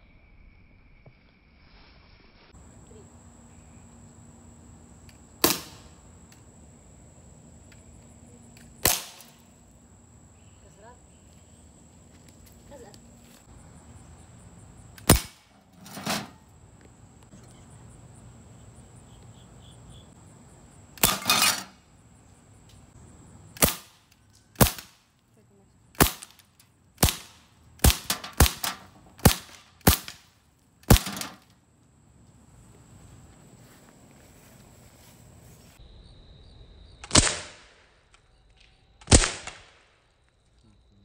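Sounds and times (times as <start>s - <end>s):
bb gun shots: 5.4s - 5.9s, 8.8s - 9.4s, 15.0s - 16.2s, 23.6s - 24.0s, 24.6s - 25.0s, 26.0s - 26.4s, 27.0s - 30.2s, 30.8s - 31.4s, 37.0s - 37.8s, 39.0s - 39.8s.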